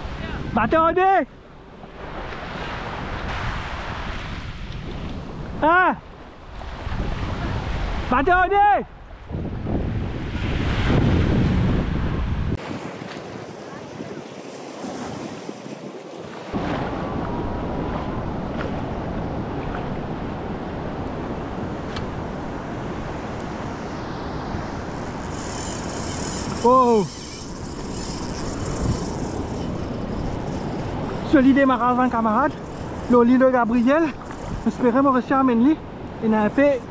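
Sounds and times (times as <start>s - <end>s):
wind on microphone: 1.9s - 8.1s, 8.8s - 36.9s
waves washing through shallow water: 10.1s - 27.1s.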